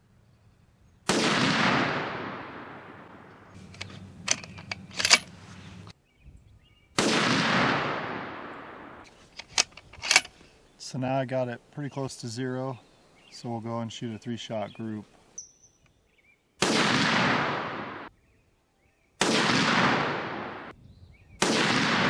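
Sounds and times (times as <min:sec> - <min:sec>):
rifle shots echoing: 0:01.0 - 0:05.4, 0:07.0 - 0:09.1, 0:16.6 - 0:18.1, 0:19.2 - 0:20.7, 0:21.4 - 0:22.0
rifle bolt metallic clicks: 0:03.6 - 0:05.4, 0:09.2 - 0:10.4.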